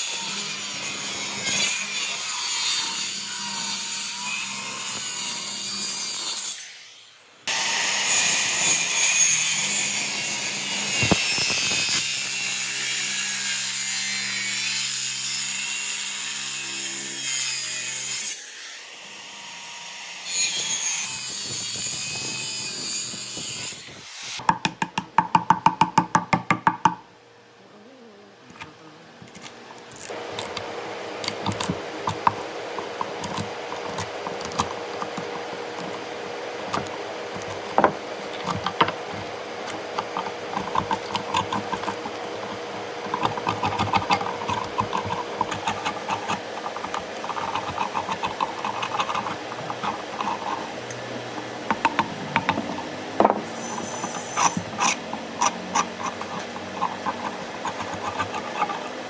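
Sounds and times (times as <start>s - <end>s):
chisel knocking wood: 24.4s - 27.0s, 36.7s - 50.6s, 51.7s - 58.8s.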